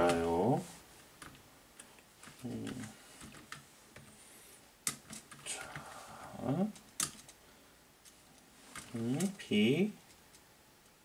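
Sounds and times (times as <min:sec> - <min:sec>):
man murmuring: 0:02.4 - 0:03.0, 0:05.4 - 0:06.8
keyboard keys clicking: 0:04.8 - 0:05.8, 0:06.6 - 0:07.4.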